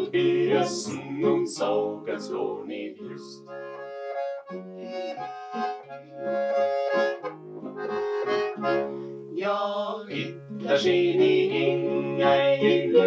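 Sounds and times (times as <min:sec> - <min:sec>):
button accordion playing: 0:00.0 - 0:01.9, 0:03.5 - 0:09.1, 0:10.2 - 0:13.0
acoustic guitar accompaniment: 0:00.0 - 0:13.0.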